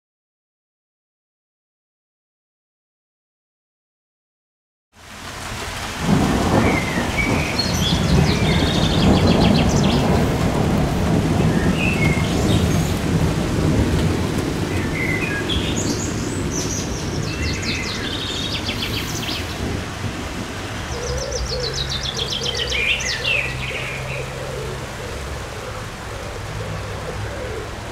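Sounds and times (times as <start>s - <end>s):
steady rain: 5.0s - 27.9s
thunder rolling low: 5.6s - 27.9s
birds singing: 6.3s - 13.6s, 14.3s - 19.8s, 20.8s - 27.9s.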